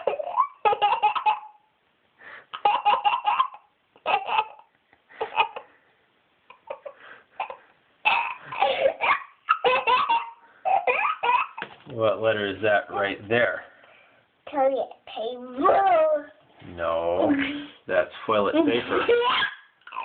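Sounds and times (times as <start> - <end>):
small boy laughing: 0.0 - 1.6, 2.5 - 5.7, 6.5 - 11.7, 18.8 - 20.0.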